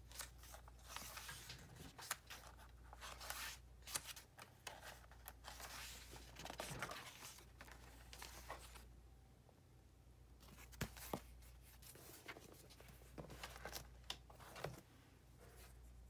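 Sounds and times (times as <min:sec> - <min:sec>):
paper pages turning: 0:00.0 - 0:08.8.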